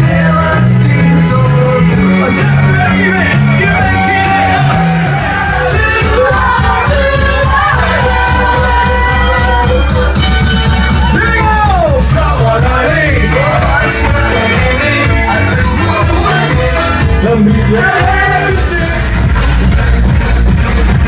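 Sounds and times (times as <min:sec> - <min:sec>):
crowd singing and shouting: 0:00.0 - 0:21.0
loud party music with steady beat: 0:00.0 - 0:21.0.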